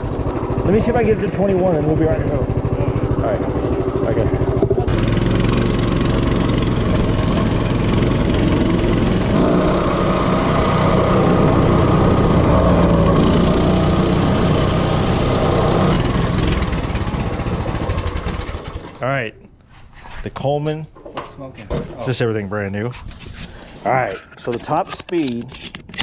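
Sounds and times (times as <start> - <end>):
minibike engine running hard: 0.0 - 19.0.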